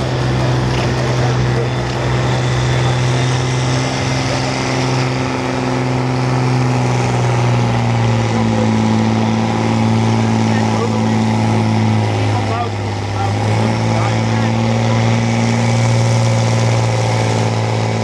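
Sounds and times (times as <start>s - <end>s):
tractor diesel engine under load: 0.0s - 18.0s.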